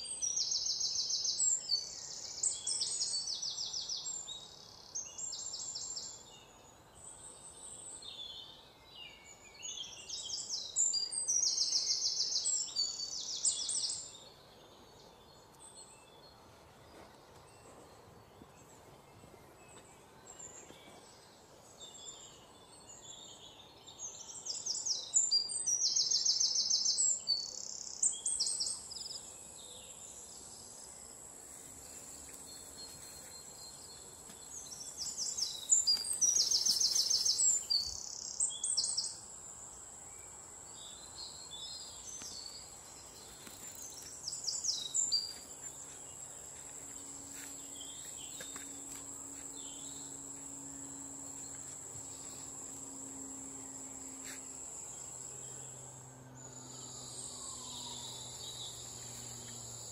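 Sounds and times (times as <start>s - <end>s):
insects whining: 25.7s - 59.9s.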